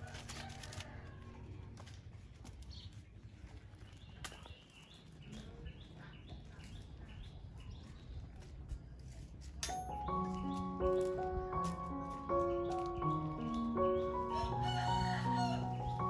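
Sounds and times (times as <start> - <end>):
faint outdoor background: 0.0 - 16.0
music with bell-like tones: 9.6 - 16.0.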